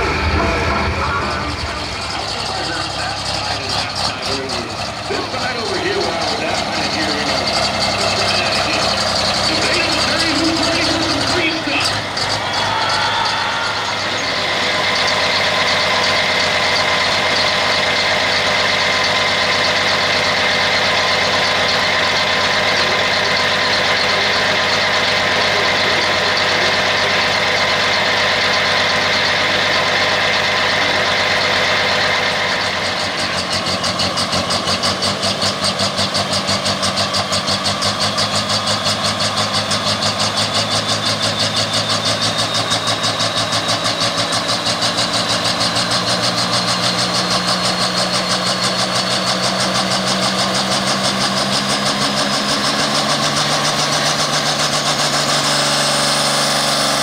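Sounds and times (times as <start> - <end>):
high whine: 0.0 - 38.2
tractor diesel engine idling: 0.0 - 57.0.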